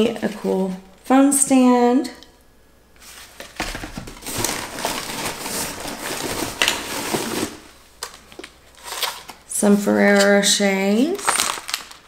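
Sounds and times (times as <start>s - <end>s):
packing paper crinkling: 3.1s - 9.5s, 11.0s - 12.0s.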